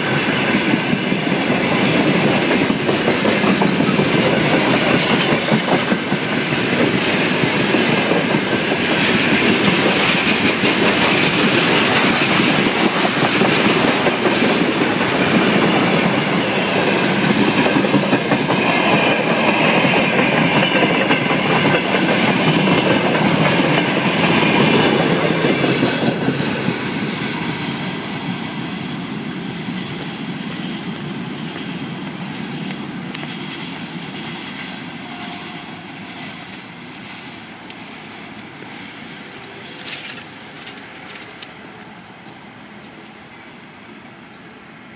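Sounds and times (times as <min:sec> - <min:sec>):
train wheels clattering over rail joints: 0:00.0 - 0:34.9.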